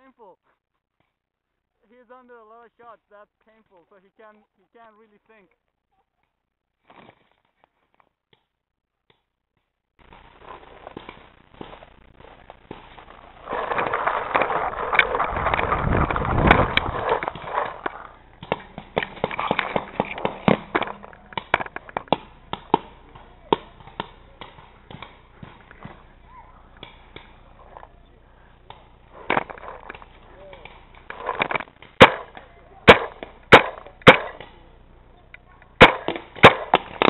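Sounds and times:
paintballs smacking into tyres: 10.0 - 26.1, 26.7 - 27.9, 28.6 - 34.7, 35.7 - 37.0
dense rough noise: 10.0 - 37.0
paintball markers firing: 10.4 - 26.1, 28.6 - 34.7, 35.7 - 37.0.

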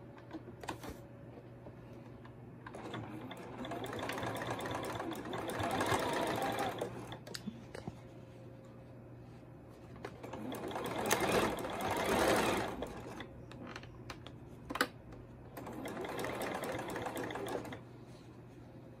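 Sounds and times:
sewing machine stitching: 2.7 - 7.2, 10.2 - 13.3, 15.5 - 17.8.

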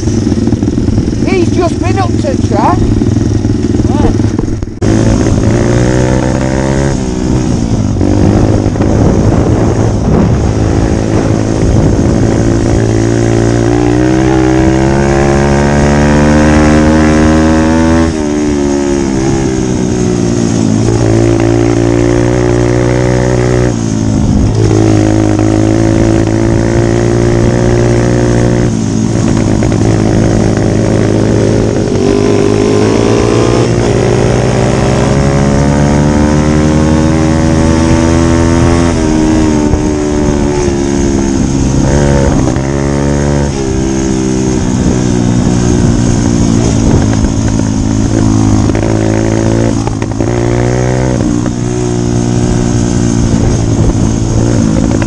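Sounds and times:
pit bike engine revving: 0.0 - 55.0.

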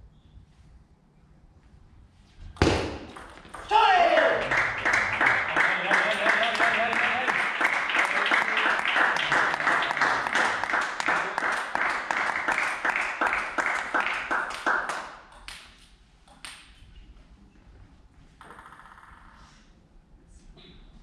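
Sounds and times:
rhythmic clapping: 3.5 - 16.7.

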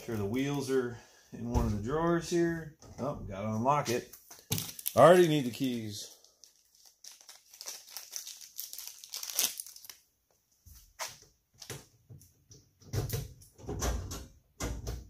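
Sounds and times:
plastic wrapping crinkling: 4.4 - 10.1.

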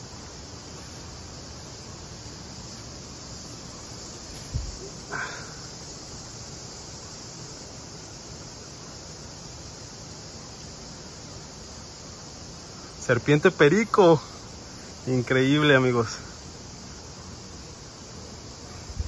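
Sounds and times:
high-pitched insect chorus: 0.0 - 19.0
dull thump: 4.3 - 4.9.

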